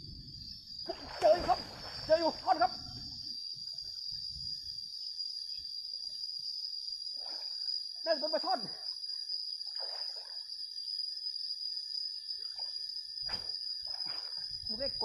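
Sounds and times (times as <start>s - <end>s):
insects buzzing: 0.0s - 15.0s
thump: 13.2s - 14.2s.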